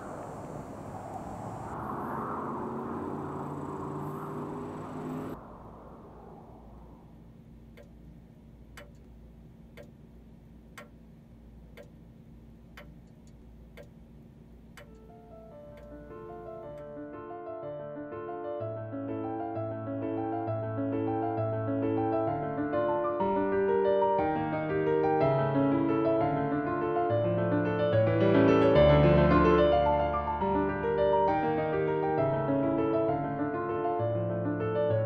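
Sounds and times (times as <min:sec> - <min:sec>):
wall clock ticking: 0:07.7 - 0:14.1, 0:14.7 - 0:16.4.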